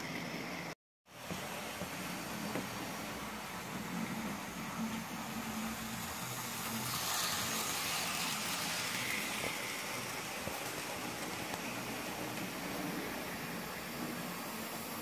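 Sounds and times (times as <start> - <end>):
wheels whirring on rails: 0.0 - 15.0
model train motor hum: 2.3 - 15.0.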